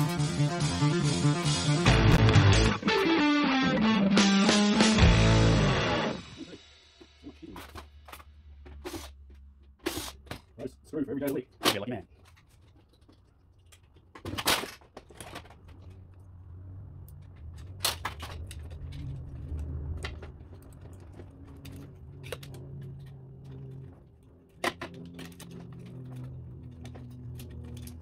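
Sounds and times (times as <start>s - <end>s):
clicks and knocks of plastic parts: 11.2s - 16.3s, 17.0s - 28.0s.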